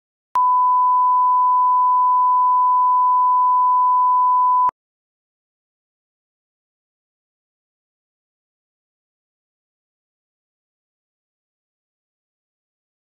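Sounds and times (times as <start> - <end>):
steady test tone beep: 0.4 - 4.7.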